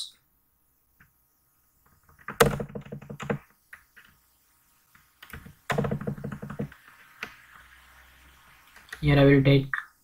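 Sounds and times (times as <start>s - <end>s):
typing on computer keyboard: 2.1s - 3.4s, 5.2s - 6.7s.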